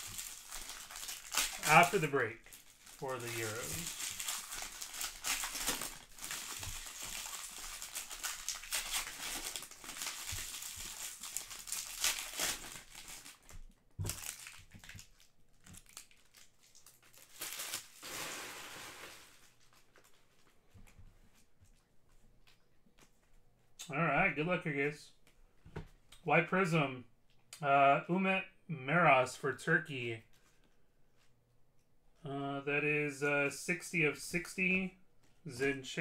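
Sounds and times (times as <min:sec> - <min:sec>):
foil wrappers crinkling and tearing: 0:00.0 - 0:20.6.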